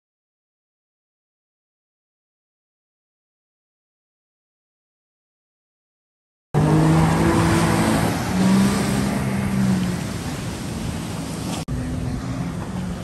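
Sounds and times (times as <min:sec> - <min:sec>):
jet ski engine running: 0:06.6 - 0:13.0
rush of spray and wind: 0:06.6 - 0:13.0.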